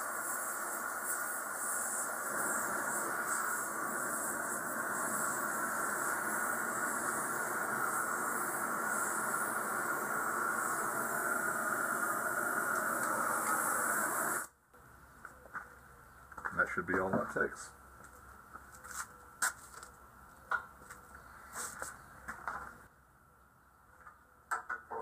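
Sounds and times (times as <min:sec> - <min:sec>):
gas torch flame hissing: 0:00.0 - 0:14.5.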